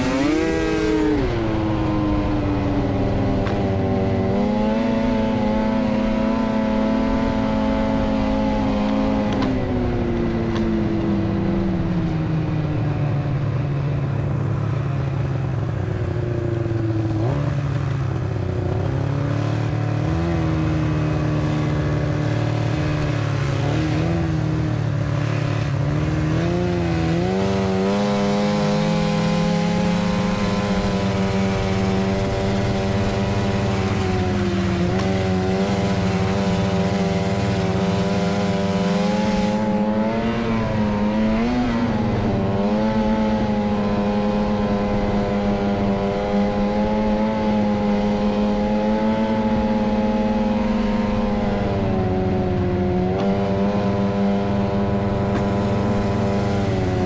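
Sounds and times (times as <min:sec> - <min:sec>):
snowmobile engine running: 0:00.0 - 0:57.0.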